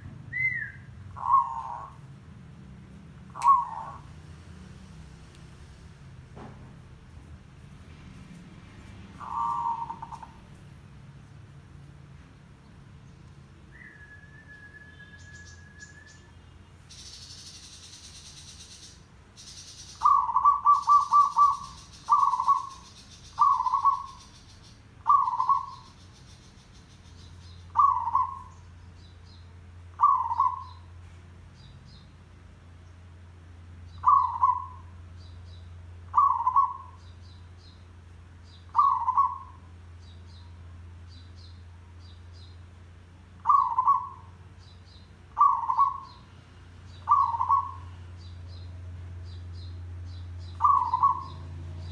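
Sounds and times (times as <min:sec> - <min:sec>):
dove cooing: 0:00.3 - 0:02.1, 0:03.3 - 0:04.2, 0:09.2 - 0:10.5, 0:20.0 - 0:24.4, 0:25.0 - 0:26.0, 0:27.7 - 0:28.5, 0:29.9 - 0:30.8, 0:34.0 - 0:34.9, 0:36.1 - 0:37.0, 0:38.7 - 0:39.7, 0:43.4 - 0:44.3, 0:45.3 - 0:46.2, 0:47.0 - 0:48.1, 0:50.6 - 0:51.9.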